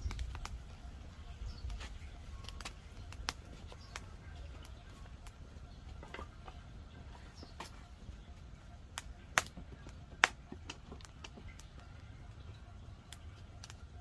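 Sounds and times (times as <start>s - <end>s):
wood crackling and ticking: 0.0s - 14.0s
sharp pops: 8.9s - 11.7s.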